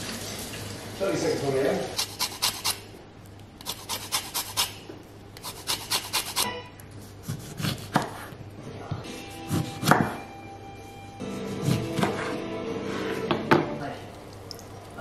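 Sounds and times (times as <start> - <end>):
lemon scraping on a grater: 5.4 - 6.5
knife cutting lemons: 7.2 - 8.3, 11.5 - 12.4.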